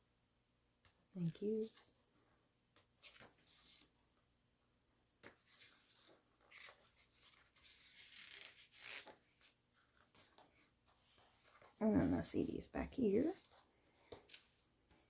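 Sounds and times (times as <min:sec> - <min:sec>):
photo book pages turning: 0:02.7 - 0:04.0, 0:05.2 - 0:12.6, 0:13.2 - 0:15.0.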